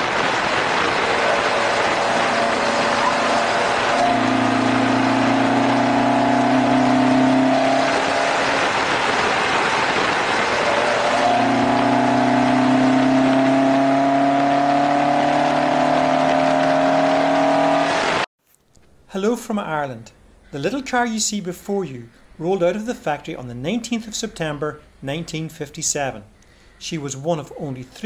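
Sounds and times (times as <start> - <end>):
wind rushing over microphone: 0.0 - 13.4
car engine accelerating: 0.0 - 18.3.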